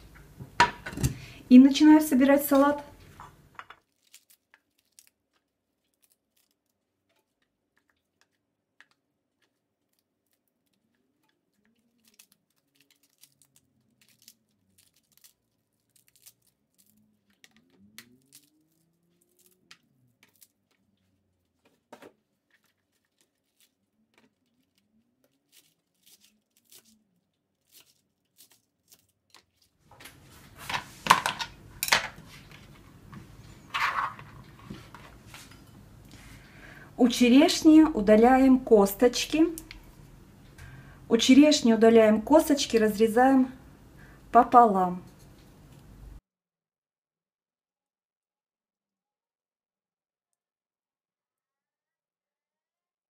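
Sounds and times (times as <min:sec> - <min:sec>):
lettuce leaves tearing: 0:03.8 - 0:06.8, 0:09.4 - 0:21.6, 0:22.4 - 0:29.7
cherries clattering onto plastic board: 0:30.6 - 0:32.4.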